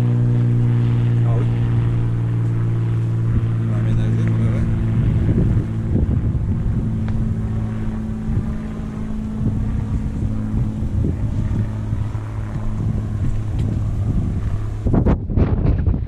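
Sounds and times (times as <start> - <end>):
low steady hum: 0.0 - 16.0
wind buffeting microphone: 0.0 - 16.0.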